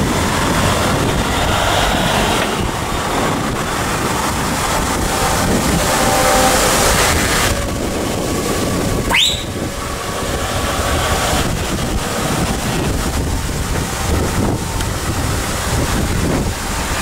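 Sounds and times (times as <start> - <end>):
trucks engine rumble: 0.0 - 17.0
wind buffeting microphone: 0.0 - 17.0
rising whistle: 9.0 - 9.7.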